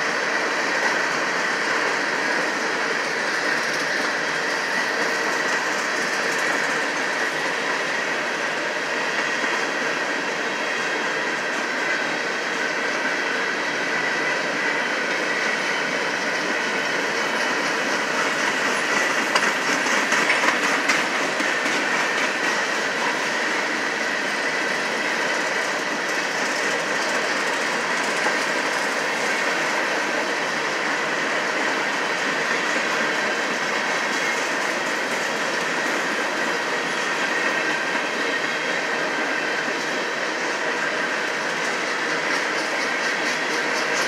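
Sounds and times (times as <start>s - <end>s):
wheels clacking over rail joints: 15.8s - 23.3s.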